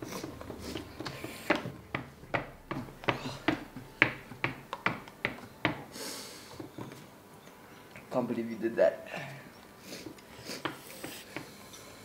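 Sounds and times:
people hissing and breathing quickly: 0.0 - 1.7, 5.9 - 6.7, 9.1 - 12.0.

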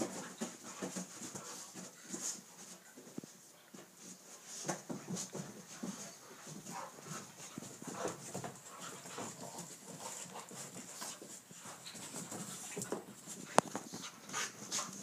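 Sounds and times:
dogs scuffling: 0.0 - 15.0
dogs panting: 4.8 - 15.0.

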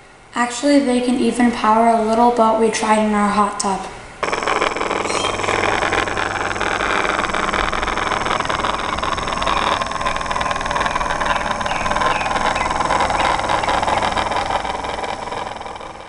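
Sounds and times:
electric motor whirring: 4.2 - 16.0.

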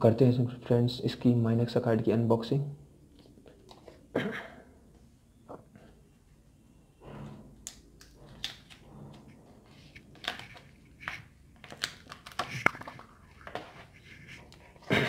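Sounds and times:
envelope paper crackling: 10.1 - 14.6.

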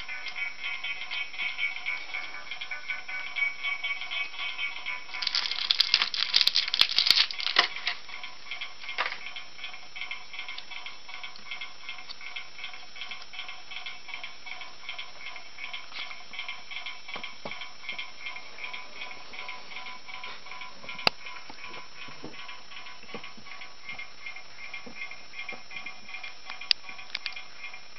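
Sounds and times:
plastic packaging crinkling: 5.1 - 8.0.

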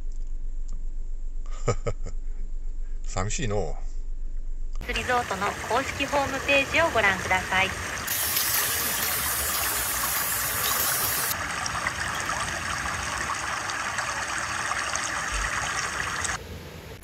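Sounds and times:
waterfall rushing: 4.9 - 11.4.

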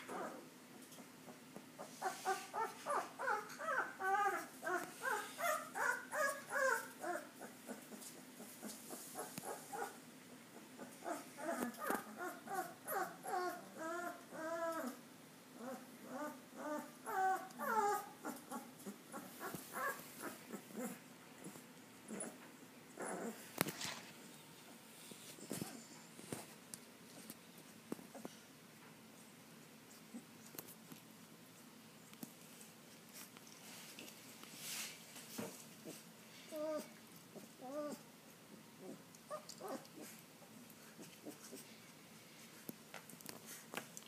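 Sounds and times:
puppies whimpering and squealing: 1.8 - 10.0, 10.7 - 15.0, 15.6 - 22.4, 35.9 - 38.0.

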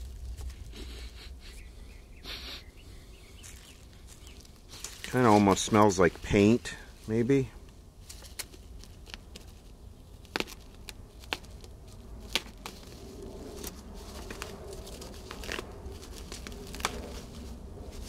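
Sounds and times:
bubble wrap crinkling and tearing: 3.5 - 6.4, 8.0 - 18.0.

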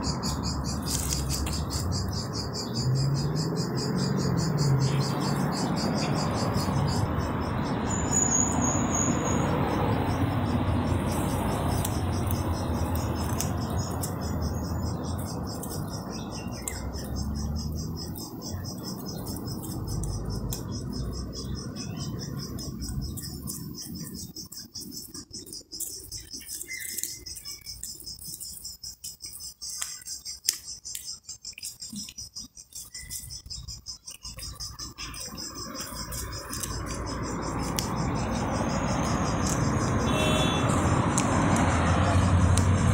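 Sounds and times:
insects chirring: 0.0 - 42.9
cat chewing: 34.1 - 40.0.

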